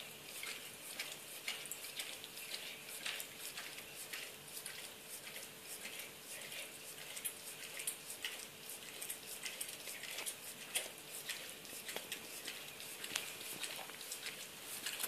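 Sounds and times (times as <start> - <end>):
dog licking wet clicks: 0.0 - 15.0.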